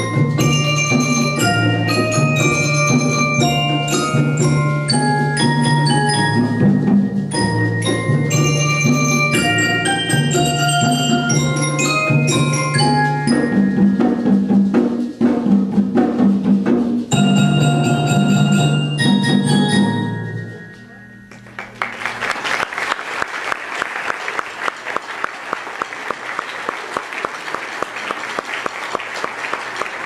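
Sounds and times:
marimba ensemble playing: 0.0 - 21.9
audience applause: 21.3 - 30.0.

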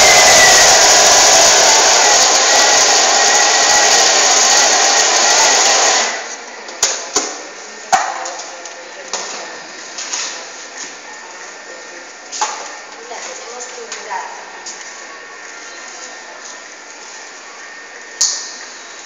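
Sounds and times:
food processor blade whirring: 0.0 - 6.3.

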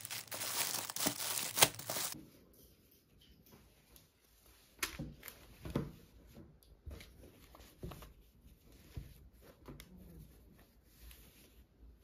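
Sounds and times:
rustling: 0.0 - 2.2.

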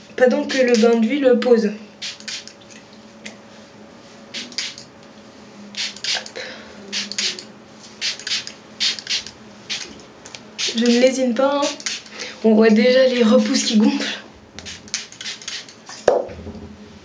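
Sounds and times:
spray bottle spritzing: 2.0 - 2.6, 4.4 - 4.9, 5.8 - 6.3, 6.9 - 7.4, 8.0 - 10.0, 10.6 - 12.1, 13.1 - 13.8, 14.6 - 15.8.

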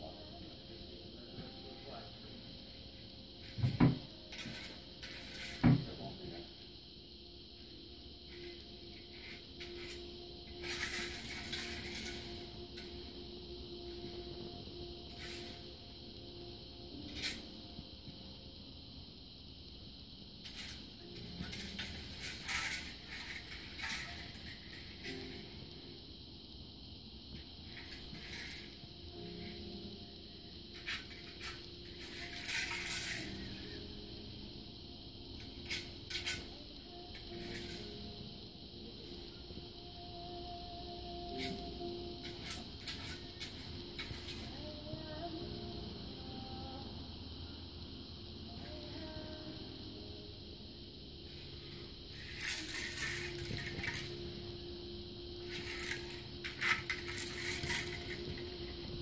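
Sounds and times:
kibble rattling in plastic toy: 55.6 - 58.4.

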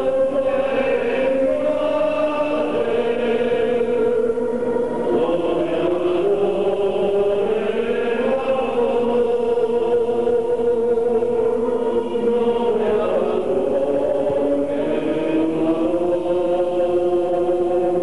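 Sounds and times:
choir singing a slow hymn: 0.0 - 18.0.

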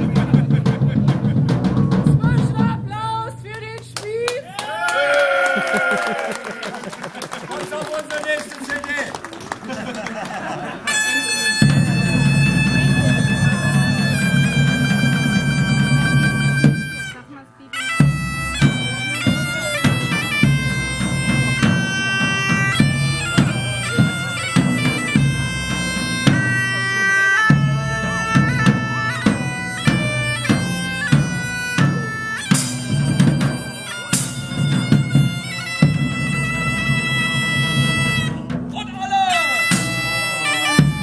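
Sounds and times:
large drum beating: 0.0 - 3.8, 9.7 - 17.2, 17.8 - 39.1
bagpipe playing over drone: 10.6 - 38.5, 39.1 - 41.0.

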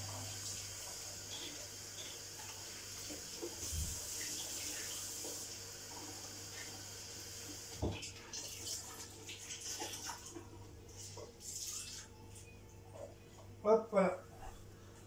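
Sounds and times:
tap running into sink: 7.6 - 8.2.

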